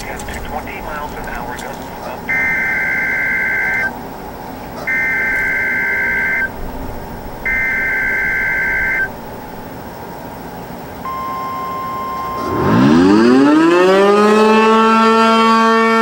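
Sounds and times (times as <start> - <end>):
long electronic beeps: 0.0 - 9.8, 11.0 - 15.0.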